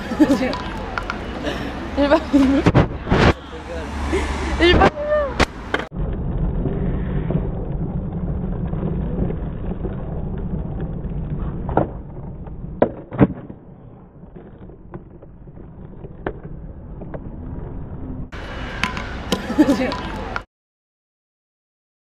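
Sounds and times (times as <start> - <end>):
skateboard wheels rolling on asphalt: 0.0 - 3.8, 4.6 - 20.4
skateboard wooden clacks: 0.4 - 1.2, 6.7 - 17.8.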